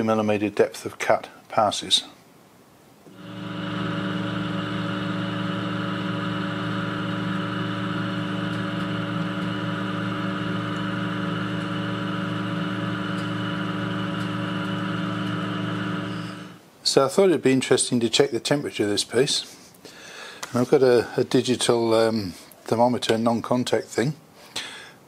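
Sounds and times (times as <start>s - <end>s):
lathe motor hum and whine: 3.1s - 16.6s
lathe tool cutting steel: 3.1s - 16.6s.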